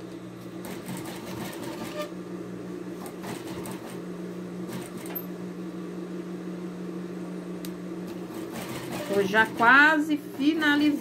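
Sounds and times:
sewing machine motor humming: 0:00.6 - 0:02.1, 0:03.0 - 0:04.0, 0:04.7 - 0:05.2, 0:08.1 - 0:10.4.

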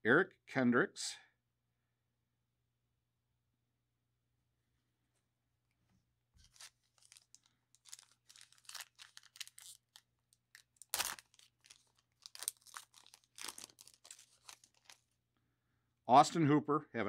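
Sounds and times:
plastic wrapper tearing and crinkling: 0:06.4 - 0:15.1.

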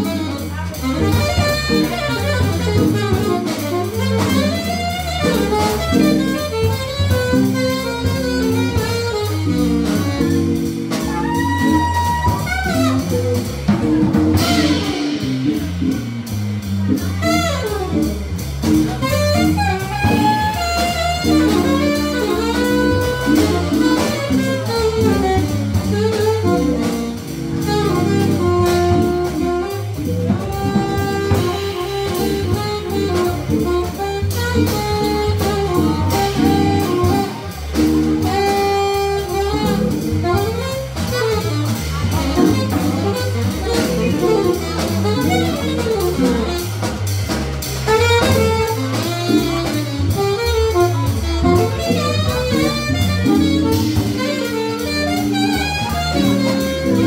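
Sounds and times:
drum kit: 0:00.0 - 0:57.0
organ comping and bass line: 0:00.0 - 0:57.0
saxophone solo: 0:00.0 - 0:57.0.

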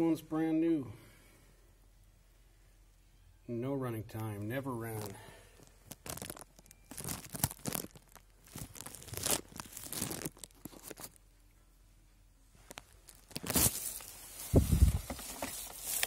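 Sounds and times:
handling noise rustling and scraping: 0:04.2 - 0:16.0.

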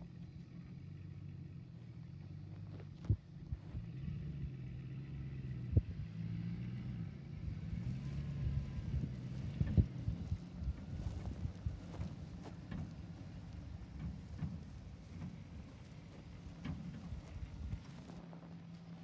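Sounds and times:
pickup truck engine running: 0:00.0 - 0:19.0.

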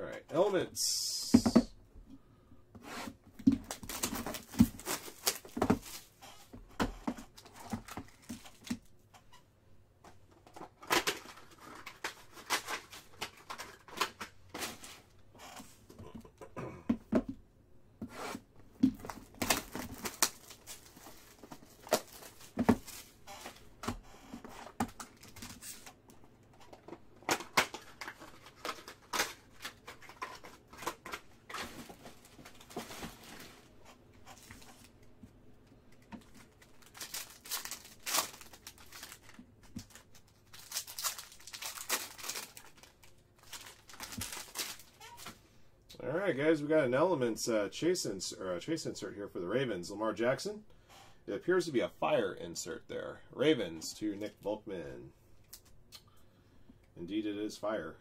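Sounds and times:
cardboard and wrapping tearing: 0:02.9 - 0:06.2, 0:19.0 - 0:23.6, 0:36.5 - 0:45.3
clicks and rustles of foil pack: 0:10.4 - 0:15.0, 0:36.0 - 0:45.4.

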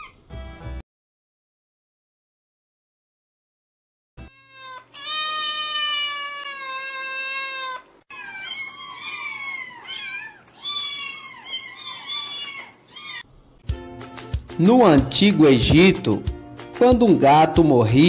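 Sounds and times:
cat meowing: 0:04.3 - 0:13.3.

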